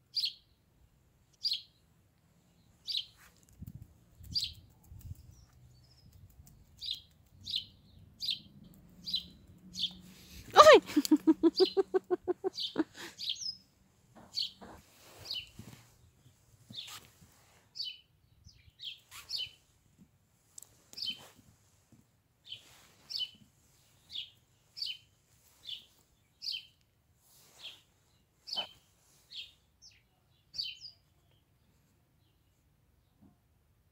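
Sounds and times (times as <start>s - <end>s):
high bird-like chirps: 17.8s - 19.6s, 28.5s - 30.0s.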